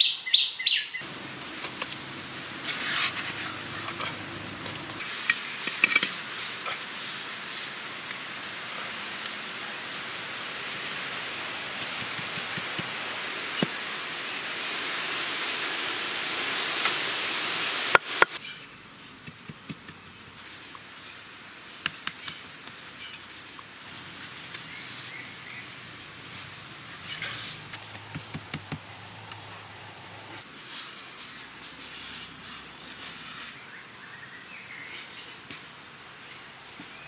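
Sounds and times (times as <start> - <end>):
outdoor hiss: 0.8 - 37.0.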